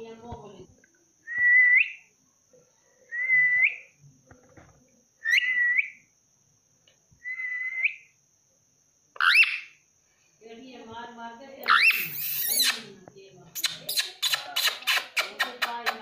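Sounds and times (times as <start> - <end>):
parakeet whistling: 5.2 - 6.0, 9.2 - 9.8, 11.6 - 12.8.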